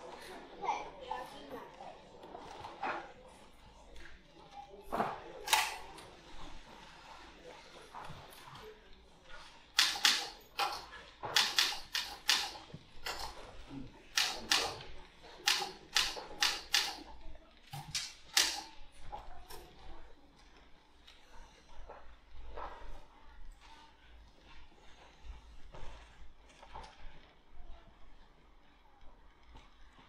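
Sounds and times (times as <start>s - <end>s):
typewriter keys clacking: 9.8s - 13.4s, 15.4s - 17.0s.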